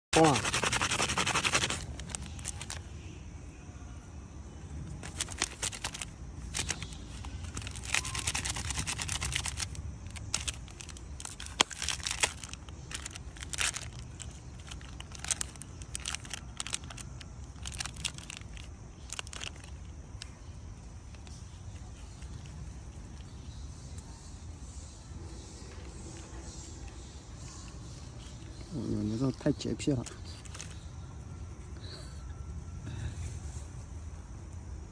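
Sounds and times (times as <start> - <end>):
plastic wrapper crinkling and tearing: 0.2 - 2.8, 5.0 - 19.9, 30.3 - 30.8.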